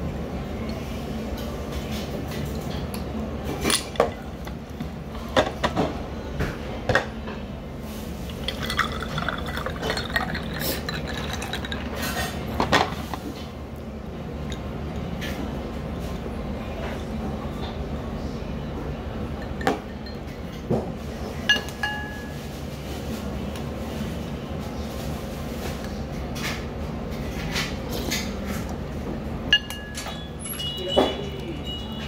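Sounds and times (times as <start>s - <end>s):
low room hum: 0.0s - 32.0s
water poured into a glass: 8.2s - 12.3s
glass and crockery clinking: 8.3s - 12.5s, 21.5s - 22.3s, 29.5s - 32.0s.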